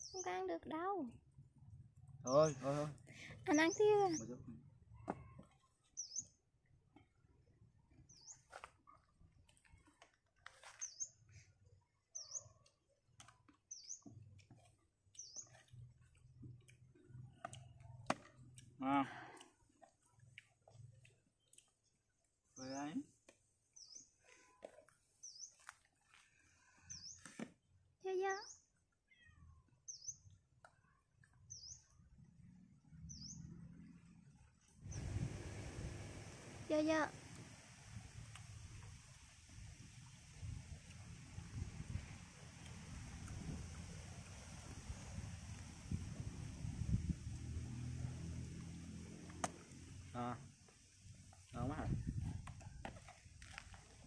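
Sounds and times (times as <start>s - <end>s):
small bird chirping: 0.0s - 0.6s, 3.4s - 6.4s, 8.0s - 8.6s, 10.6s - 11.4s, 12.1s - 12.8s, 13.6s - 14.5s, 15.1s - 16.2s, 23.7s - 24.6s, 25.2s - 25.7s, 26.8s - 27.3s, 28.2s - 32.0s, 33.0s - 33.6s.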